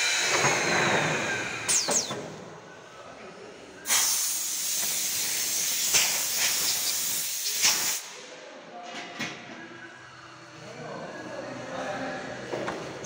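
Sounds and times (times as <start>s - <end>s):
compressed air hissing: 3.8s - 8.2s.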